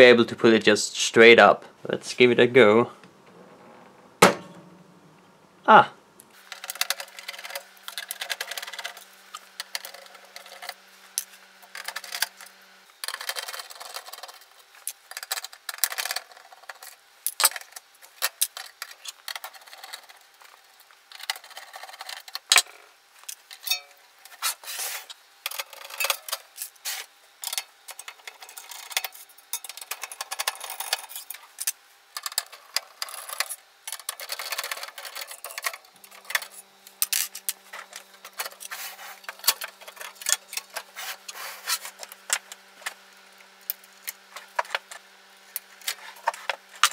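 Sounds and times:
metal parts clicking and rattling: 0:06.4 - 0:23.9, 0:25.4 - 0:26.8, 0:27.4 - 0:41.3.

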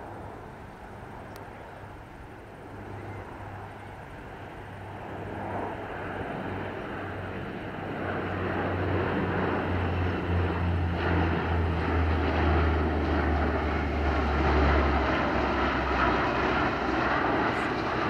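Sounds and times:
turboprop propellers droning: 0:00.0 - 0:18.0
rush of engine noise: 0:08.2 - 0:18.0.

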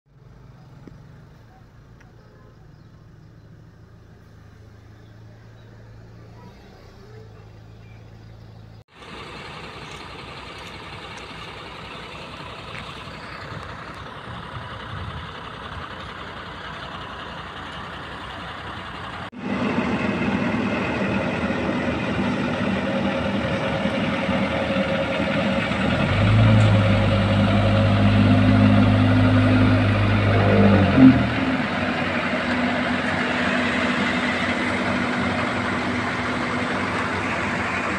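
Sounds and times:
diesel engine idling: 0:00.1 - 0:37.9
loud engine hum: 0:00.1 - 0:37.9
traffic noise: 0:00.1 - 0:37.9
deep drone: 0:11.9 - 0:37.9.

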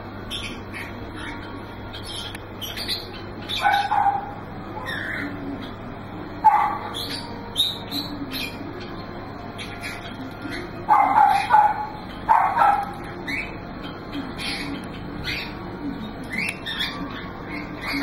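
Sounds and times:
small birds chirping: 0:00.0 - 0:18.0
dog yipping: 0:03.5 - 0:05.2, 0:06.4 - 0:07.2, 0:10.9 - 0:13.4.

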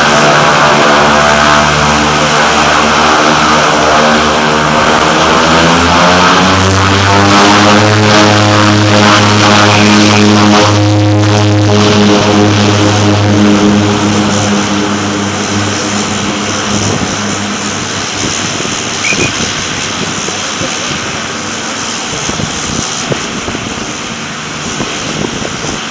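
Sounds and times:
plane rolling rush: 0:00.0 - 0:25.9
turboprop propeller drone: 0:00.0 - 0:25.9.

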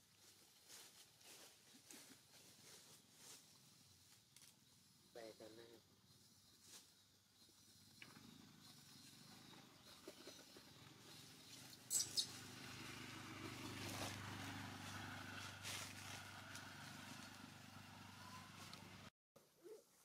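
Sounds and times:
motor running: 0:04.6 - 0:19.1.

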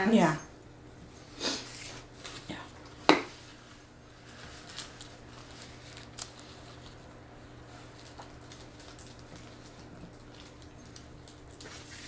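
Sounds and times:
paper wrappers crinkling: 0:03.3 - 0:12.0.

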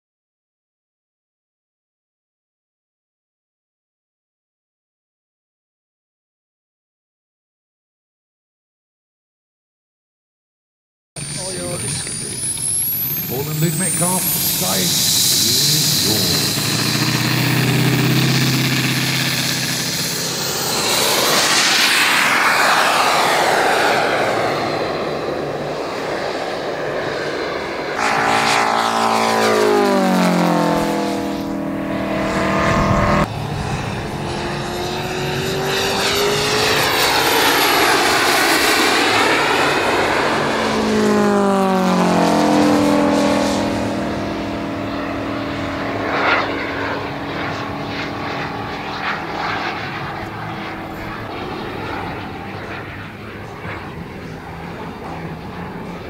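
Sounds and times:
model jet planes flying past: 0:11.2 - 0:56.0
thin high whine: 0:11.2 - 0:56.0.

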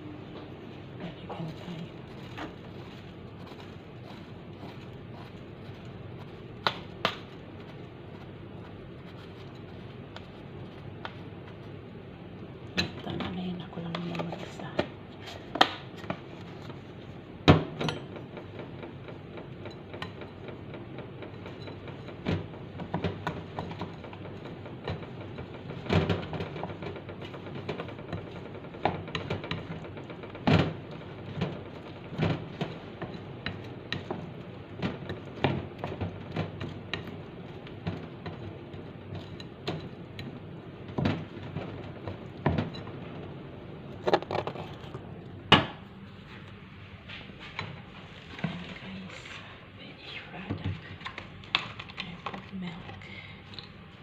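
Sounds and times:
utensil scraping ceramic bowl: 0:01.1 - 0:11.0.

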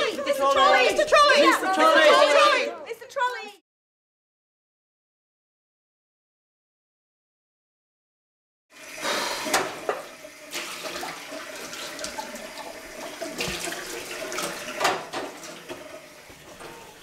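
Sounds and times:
tap running into sink: 0:09.0 - 0:17.0
dishes clinking against sink: 0:09.4 - 0:10.1, 0:14.3 - 0:17.0.

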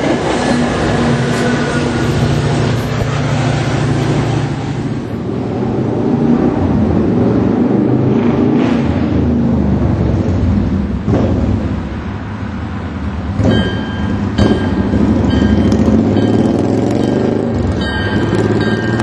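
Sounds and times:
diesel locomotive rumbling: 0:00.0 - 0:19.0
thin high ringing tone: 0:13.4 - 0:19.0.

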